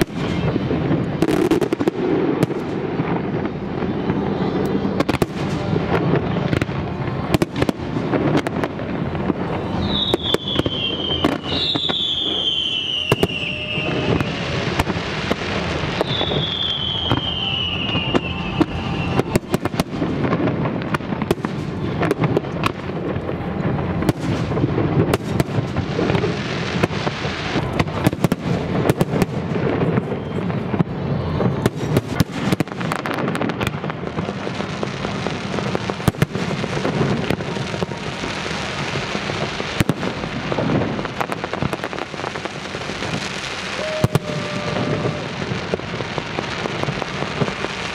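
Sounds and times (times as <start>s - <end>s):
fireworks bangs and crackling: 0.0s - 47.9s
falling whistle: 9.8s - 14.6s, 16.0s - 19.7s.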